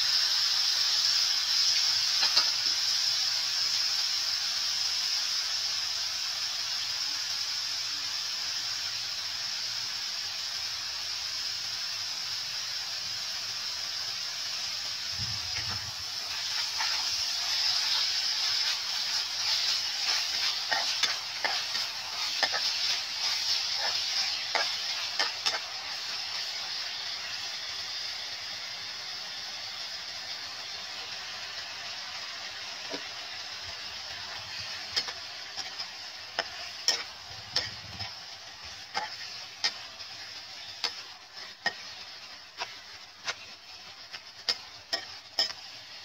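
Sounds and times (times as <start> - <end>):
beef sizzling in a frying pan: 0.0 - 46.0
metal spatula scraping a pan: 15.6 - 26.2, 34.4 - 46.0.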